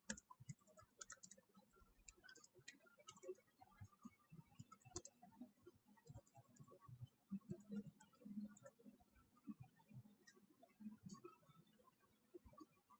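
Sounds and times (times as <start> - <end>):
computer keyboard and mouse clicks: 0.0 - 3.4, 4.6 - 5.2.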